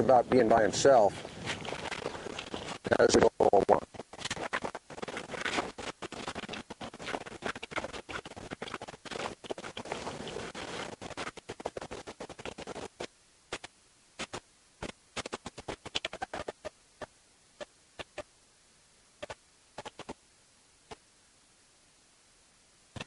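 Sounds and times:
sharp clicks: 0:01.6 - 0:16.5, 0:19.2 - 0:20.2.

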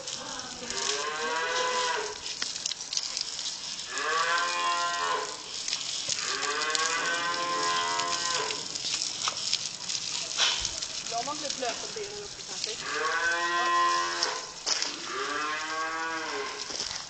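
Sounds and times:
garden hose spraying water: 0:00.0 - 0:17.0
cattle mooing: 0:00.2 - 0:02.2, 0:03.8 - 0:08.9, 0:12.6 - 0:16.8.

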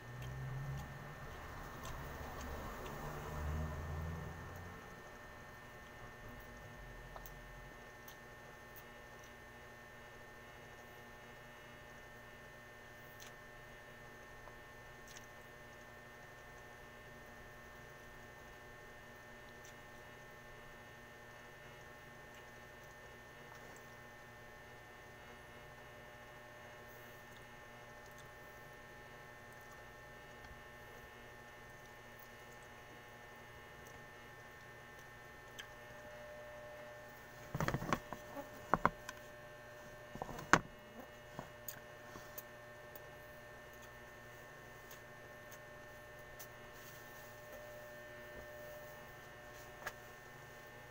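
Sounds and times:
electrical mains hum: 0:00.0 - 0:50.9.

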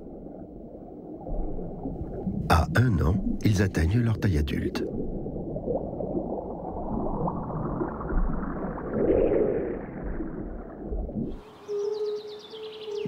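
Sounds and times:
underwater gurgling and bubbling: 0:00.0 - 0:03.6, 0:04.9 - 0:11.4.

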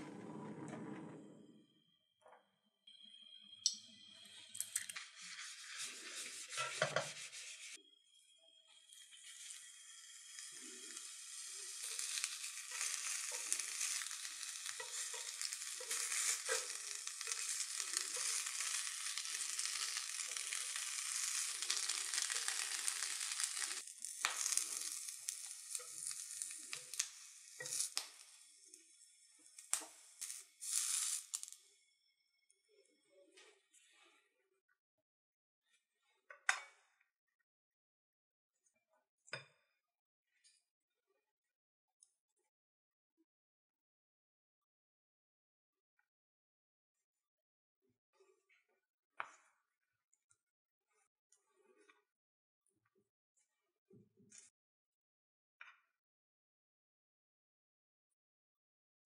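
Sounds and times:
roe sizzling in a frying pan: 0:03.6 - 0:07.8, 0:08.5 - 0:31.8.

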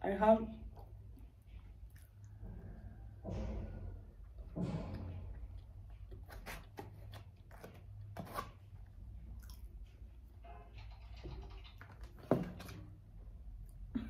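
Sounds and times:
person chewing: 0:00.7 - 0:02.5, 0:08.8 - 0:10.2.

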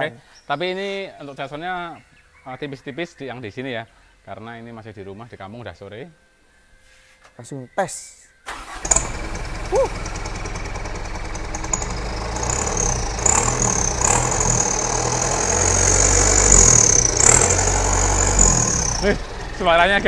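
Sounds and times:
diesel truck engine revving: 0:08.5 - 0:20.0.

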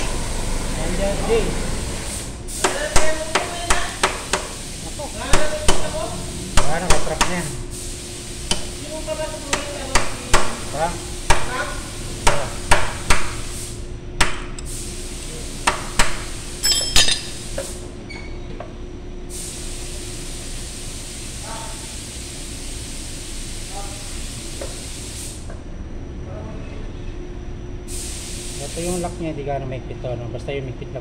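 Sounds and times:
tool knocking on metal hub: 0:02.6 - 0:04.5, 0:05.3 - 0:07.5, 0:09.5 - 0:10.7.

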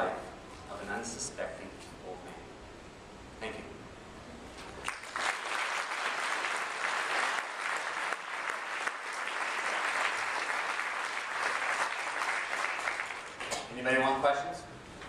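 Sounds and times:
audience applauding: 0:04.8 - 0:13.6.

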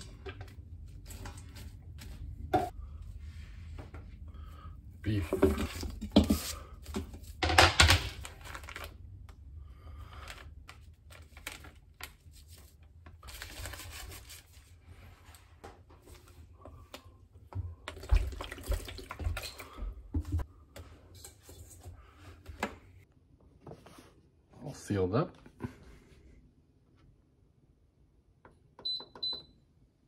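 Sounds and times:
wrapper rustling: 0:05.7 - 0:09.0, 0:10.2 - 0:14.7.

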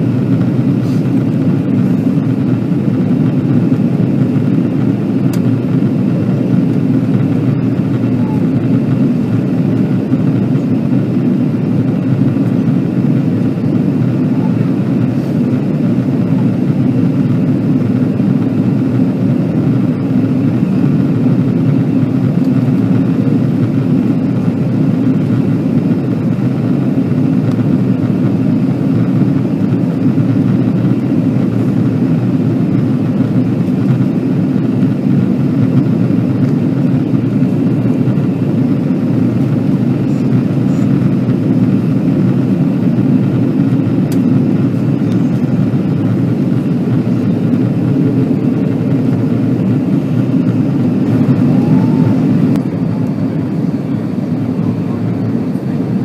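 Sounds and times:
airplane cabin engine and airflow noise: 0:00.0 - 0:56.0.

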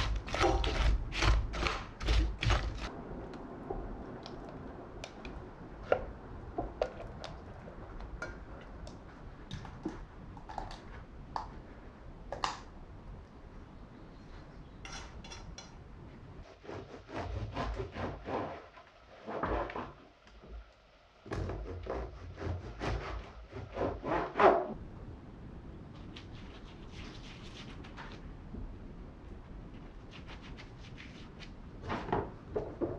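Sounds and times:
knife sawing crusty bread: 0:00.0 - 0:02.9
spatula scraping a saucepan: 0:00.0 - 0:02.9.

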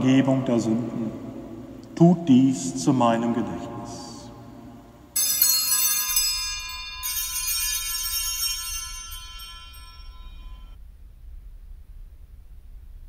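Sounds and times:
altar bells jingling: 0:05.2 - 0:10.8.

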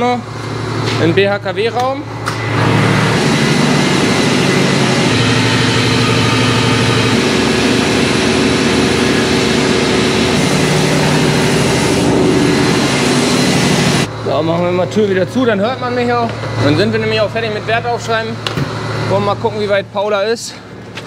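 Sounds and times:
gas engine running: 0:00.0 - 0:21.0
engine room door opening: 0:00.4 - 0:14.1.

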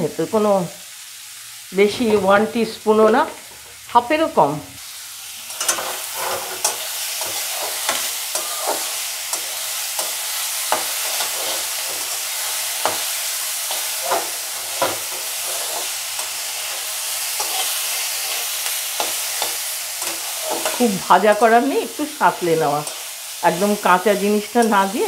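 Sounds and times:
vegetables sizzling in oil: 0:00.0 - 0:25.0
metal spatula scraping pan: 0:05.4 - 0:20.8.

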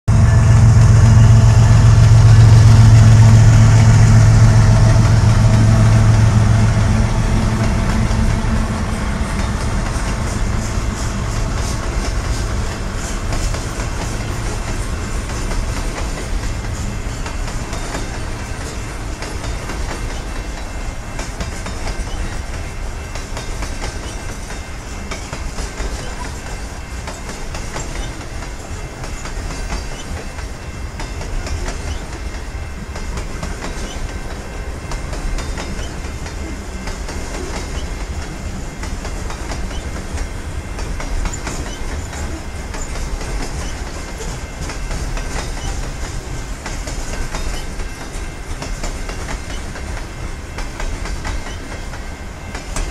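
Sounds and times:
train wheels rumbling on rail: 0:00.1 - 0:52.9
wheels clattering over rail joints: 0:04.0 - 0:52.9.

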